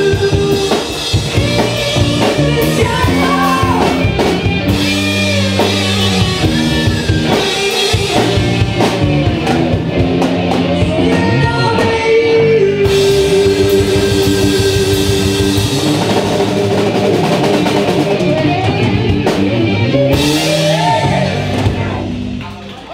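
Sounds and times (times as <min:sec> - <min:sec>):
man singing lead vocal: 0:00.0 - 0:04.2, 0:10.5 - 0:15.8, 0:20.1 - 0:22.0
live rock band playing a ballad: 0:00.0 - 0:22.7.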